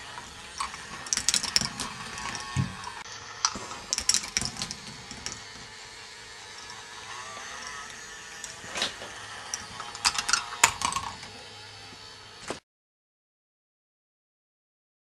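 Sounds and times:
plastic balls clattering on track: 0.0s - 5.9s, 6.6s - 11.4s
mechanical whirr of motors: 0.0s - 12.6s.

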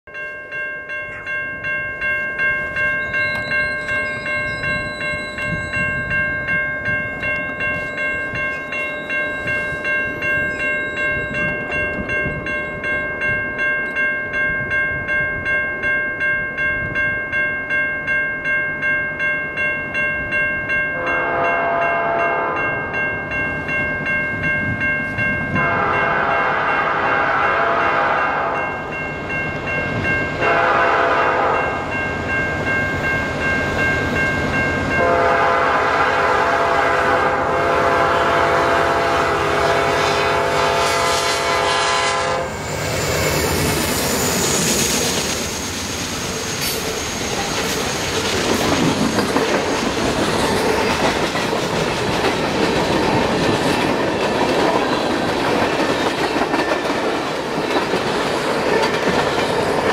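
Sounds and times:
crossing warning bell dinging: 0.1s - 59.9s
train air horn blasts: 21.0s - 22.7s, 25.6s - 28.6s, 30.4s - 31.8s, 35.0s - 42.7s
diesel locomotives rumbling: 21.0s - 59.9s.

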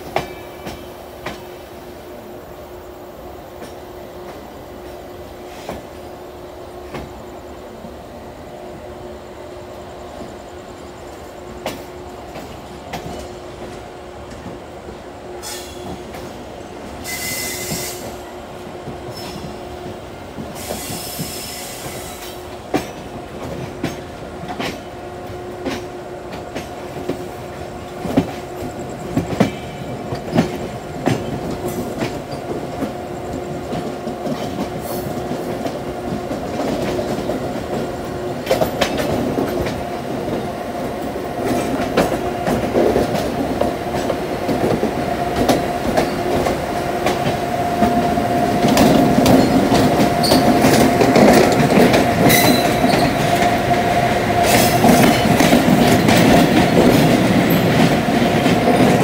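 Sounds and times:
train wheels squealing: 0.0s - 1.6s, 15.3s - 24.8s, 26.6s - 40.6s, 45.4s - 59.0s
wheels clacking over rail joints: 11.5s - 59.0s.

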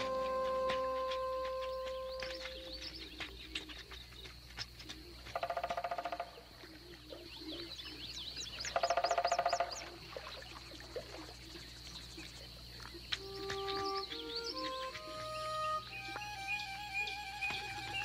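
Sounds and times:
thin steady high tone: 0.0s - 3.0s
pulsed rattling animal calls: 0.0s - 10.0s.

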